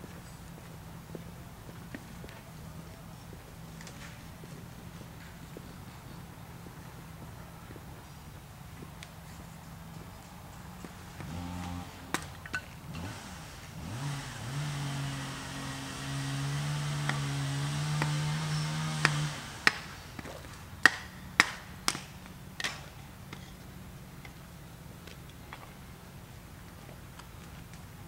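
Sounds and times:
motor running: 0:11.1 - 0:20.5
sharp loud knocks: 0:16.8 - 0:22.8.

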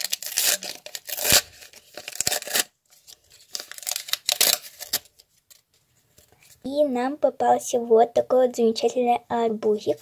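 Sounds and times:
paper crinkling and rustling: 0:00.0 - 0:06.6.

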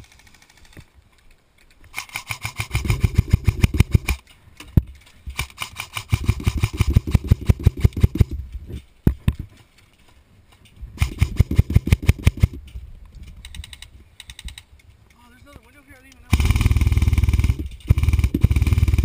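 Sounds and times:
airsoft rifle firing bursts: 0:01.9 - 0:04.2, 0:05.4 - 0:08.3, 0:11.0 - 0:12.6, 0:16.3 - 0:19.0.

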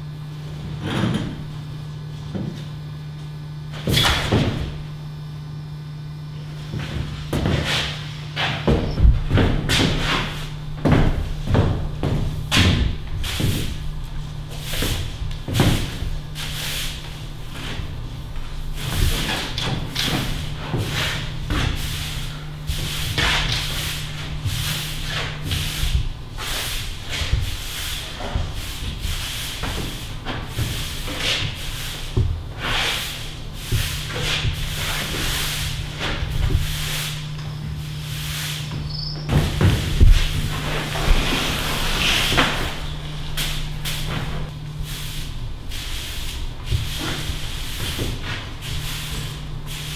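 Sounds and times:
low steady hum: 0:00.0 - 0:49.9
broom sweeping floor: 0:06.4 - 0:49.9.

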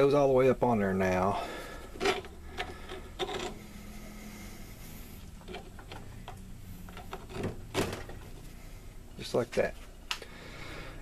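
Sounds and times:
low steady hum: 0:00.0 - 0:11.0
faint scraping: 0:01.1 - 0:09.0.

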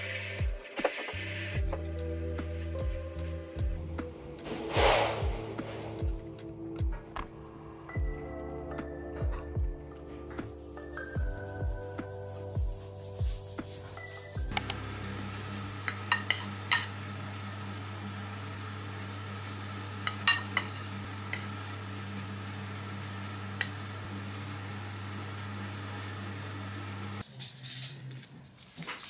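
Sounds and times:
low hum: 0:01.6 - 0:08.6.

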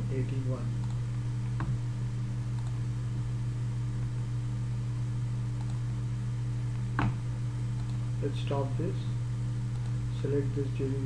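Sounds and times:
low hum and hiss: 0:00.0 - 0:11.0
faint clicks: 0:05.6 - 0:05.8, 0:09.7 - 0:10.0.

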